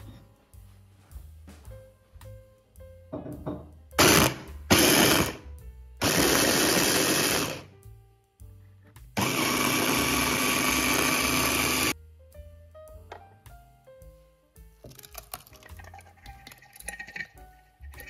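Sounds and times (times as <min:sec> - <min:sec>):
electric chopper pureeing fruit: 0:04.0 - 0:05.4, 0:06.0 - 0:07.7, 0:09.2 - 0:12.0.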